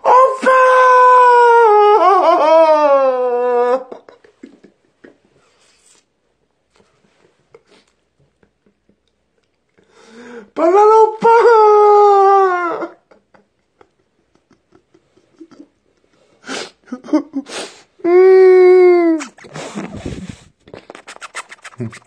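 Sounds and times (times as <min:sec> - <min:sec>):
man wailing: 0:00.0 - 0:04.0, 0:10.6 - 0:13.1.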